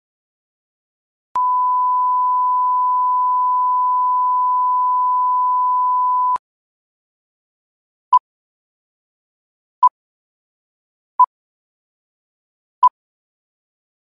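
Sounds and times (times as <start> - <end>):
pure test tone beep: 1.4 - 6.4.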